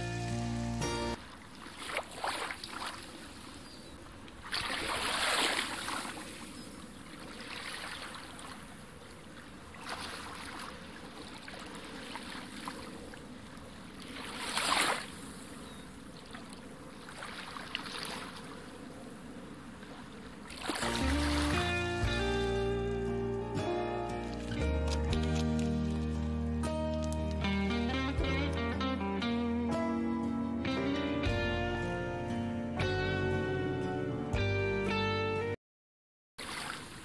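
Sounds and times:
rushing water-like noise: 0:04.2 - 0:15.6, 0:19.5 - 0:21.8.

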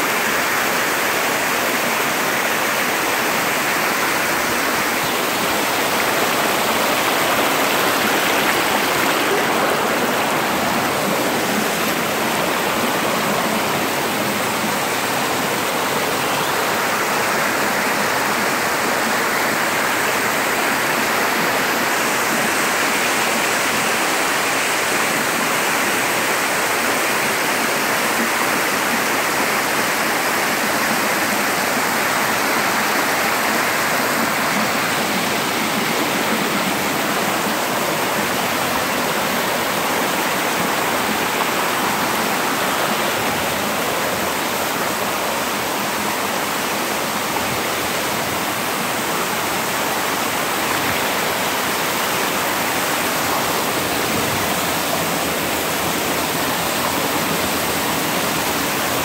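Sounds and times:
water splashing over rocks: 0:01.7 - 0:18.9.

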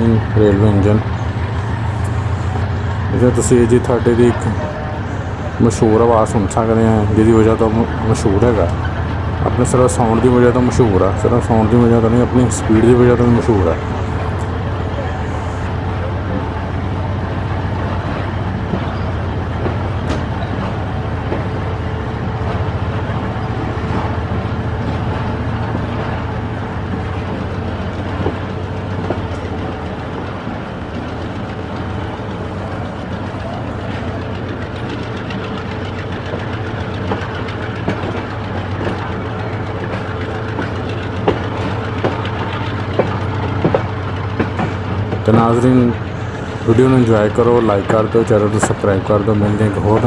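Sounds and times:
diesel locomotive drone: 0:00.0 - 0:50.0
train wheels rumbling on rails: 0:00.0 - 0:50.0.

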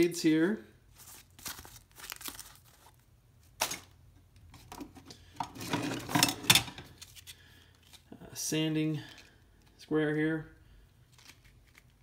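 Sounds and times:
plastic packaging crinkling: 0:00.9 - 0:03.9, 0:11.0 - 0:12.0
sharp plastic crackle: 0:01.0 - 0:03.0.

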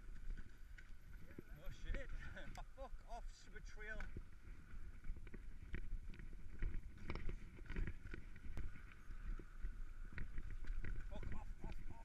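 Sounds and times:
bike knocking and rattling: 0:03.7 - 0:12.0.

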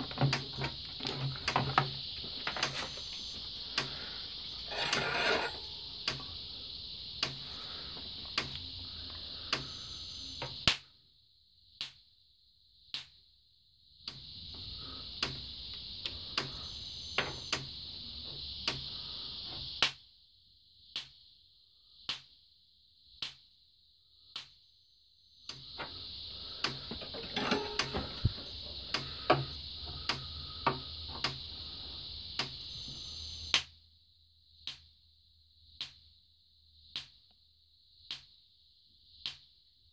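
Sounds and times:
high hiss with low hum: 0:00.0 - 0:10.8, 0:14.1 - 0:19.9, 0:25.5 - 0:33.7.

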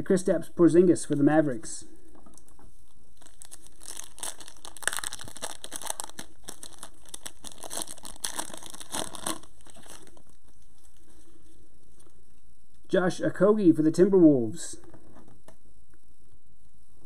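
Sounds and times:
foil wrapper crinkling and tearing: 0:03.2 - 0:11.0.

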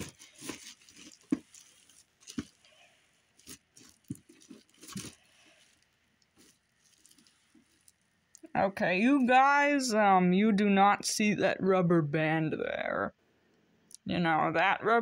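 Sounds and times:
bubble wrap crinkling: 0:00.0 - 0:08.5.

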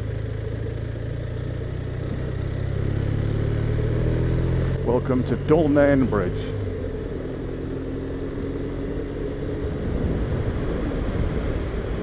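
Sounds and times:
motorcycle engine running: 0:00.0 - 0:12.0
wind on microphone: 0:09.6 - 0:12.0.

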